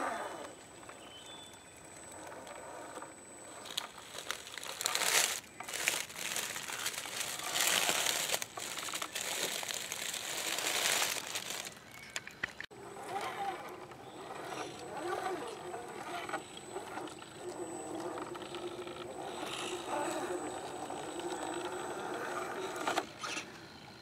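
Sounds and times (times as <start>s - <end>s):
dry leaves crunching and rustling: 3.6s - 12.0s.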